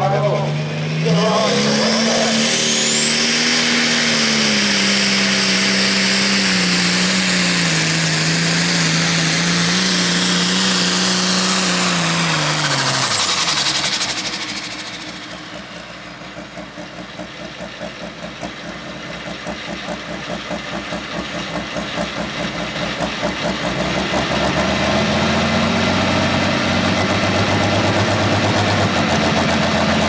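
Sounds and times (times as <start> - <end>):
tractor engine at full power: 0.0 - 30.0
turbo whine: 0.0 - 30.0.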